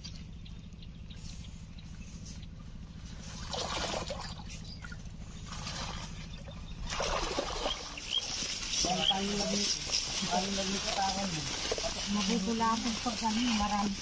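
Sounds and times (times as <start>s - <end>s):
steady low hum: 0.0s - 14.0s
splashing through water: 3.2s - 14.0s
leaves rustling: 7.0s - 14.0s.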